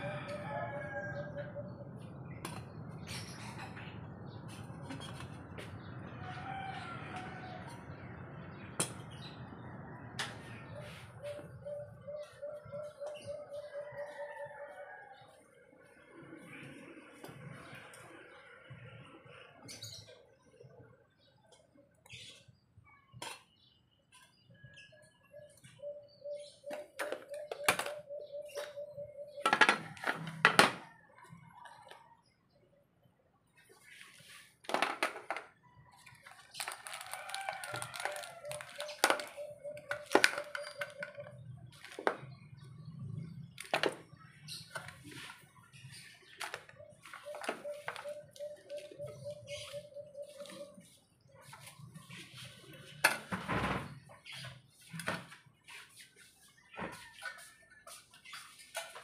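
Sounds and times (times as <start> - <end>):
birds calling: 10.2 - 15.4, 23.2 - 32.1, 35.9 - 57.2.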